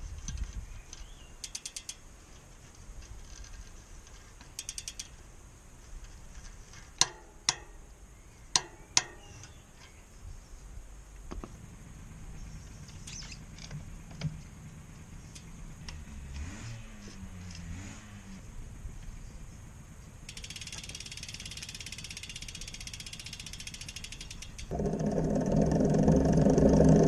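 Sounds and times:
ratchet clicks: 0.2 - 2.1, 3.0 - 5.2, 20.3 - 27.0
torque wrench metallic clicks: 0.9 - 2.0, 4.5 - 5.2, 20.3 - 24.7.

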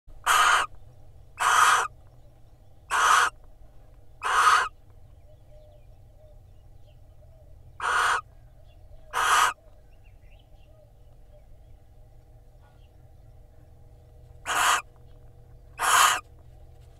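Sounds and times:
owls hissing calls: 0.2 - 0.7, 1.4 - 1.9, 2.9 - 3.4, 4.2 - 4.8, 7.8 - 8.3, 9.1 - 9.6, 14.4 - 14.9, 15.8 - 16.2.

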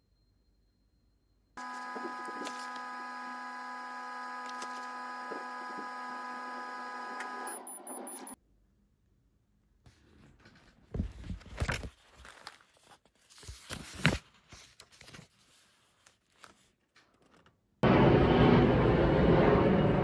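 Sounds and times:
rustling and crinkling handling: 1.6 - 2.9, 10.0 - 17.4.

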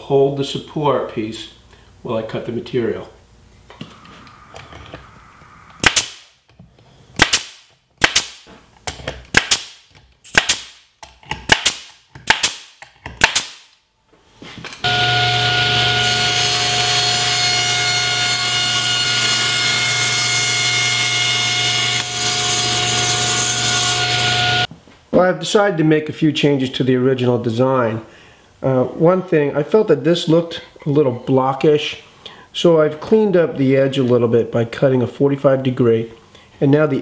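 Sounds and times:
nail gun shots into plywood: 7.2 - 8.5, 9.3 - 13.7
table saw running: 14.8 - 24.7.

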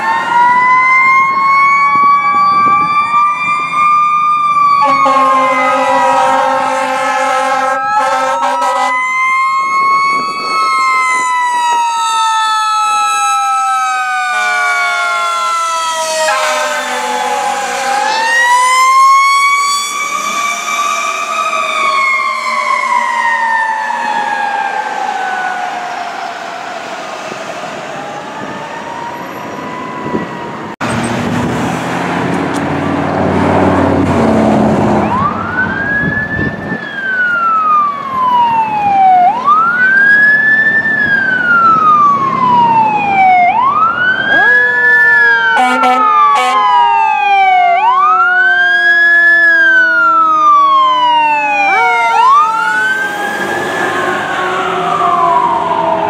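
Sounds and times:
fire engine siren wailing: 0.0 - 56.0
fire truck passing: 0.0 - 56.0
lower siren: 0.0 - 56.0
horn blasts: 4.8 - 9.0, 16.2 - 18.3, 45.6 - 46.7.

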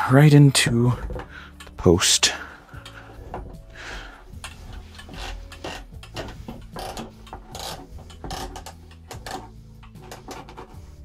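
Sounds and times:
metal pole scraping in socket: 4.4 - 11.0.

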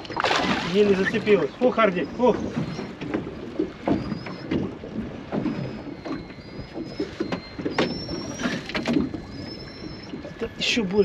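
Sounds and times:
water splashing against boat: 0.0 - 11.0
faint high whistling: 3.9 - 4.5, 5.5 - 11.0.

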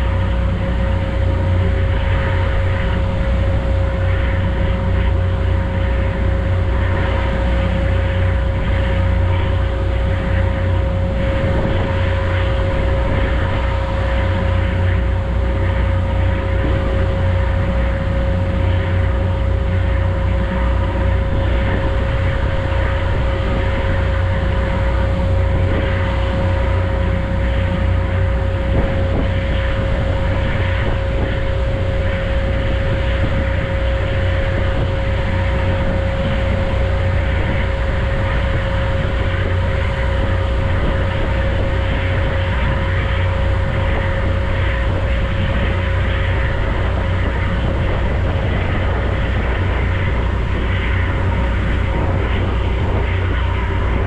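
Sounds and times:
ferry engines droning: 0.0 - 54.0.

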